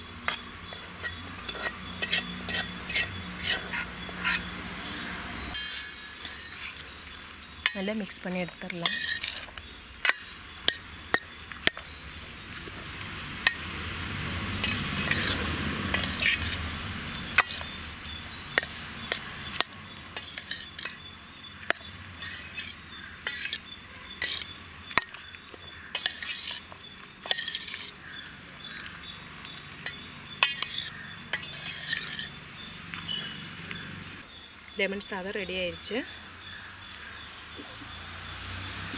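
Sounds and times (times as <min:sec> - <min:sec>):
rice scraping and rustling: 0:05.4 - 0:16.7, 0:24.2 - 0:34.2.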